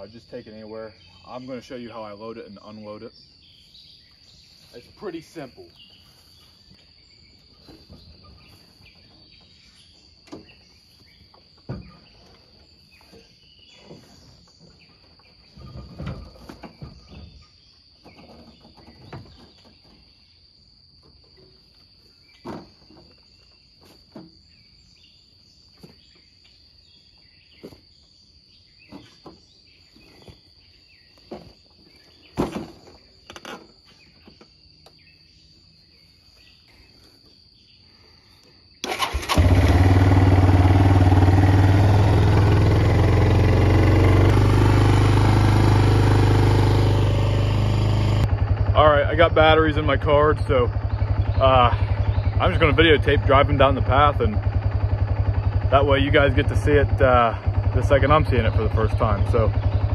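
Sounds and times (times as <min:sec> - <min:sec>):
insect drone: 0:00.0 - 0:59.9
clunks and thumps of vehicle: 0:07.4 - 0:20.3, 0:21.0 - 0:24.7, 0:28.8 - 0:30.5, 0:31.1 - 0:35.0.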